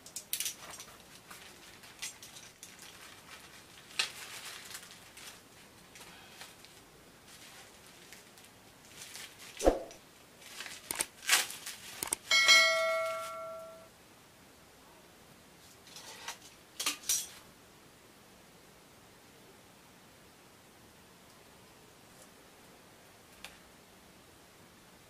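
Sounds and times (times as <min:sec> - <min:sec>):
bubble wrap crinkling: 0:00.3 - 0:09.6, 0:10.4 - 0:12.3
sharp thump: 0:09.6 - 0:10.0
bright metallic ring: 0:12.3 - 0:13.9.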